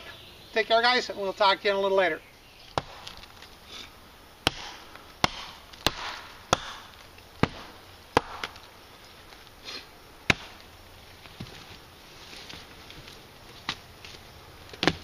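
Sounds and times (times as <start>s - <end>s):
hatchet chopping wood: 2.7s - 3.3s, 4.4s - 8.7s, 10.2s - 10.6s, 14.7s - 15.0s.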